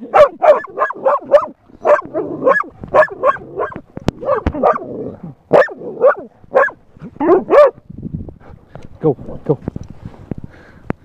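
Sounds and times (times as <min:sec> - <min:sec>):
dog barking: 0:00.1 - 0:04.9, 0:05.5 - 0:07.8.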